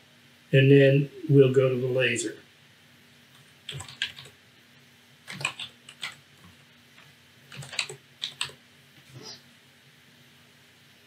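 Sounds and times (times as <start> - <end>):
keyboard key clicks: 5.3 - 6.2.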